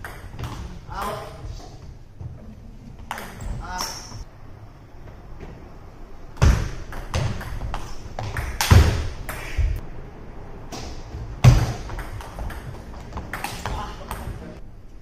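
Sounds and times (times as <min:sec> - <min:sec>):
ping pong ball clicking: 0:11.9 - 0:14.3.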